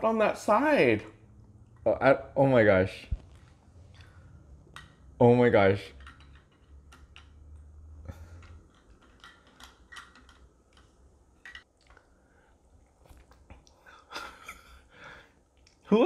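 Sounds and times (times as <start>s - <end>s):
plastic blocks clicking: 5.9s - 7.5s, 8.3s - 11.7s.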